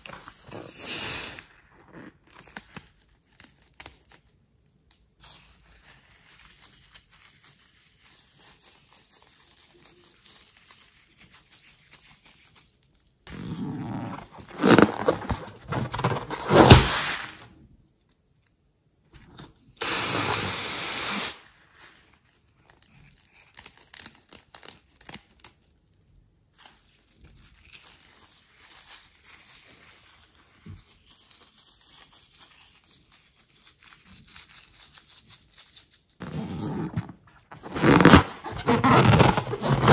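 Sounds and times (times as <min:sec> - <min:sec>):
scissors cutting balloons: 0:13.3 - 0:17.3, 0:36.2 - 0:39.9.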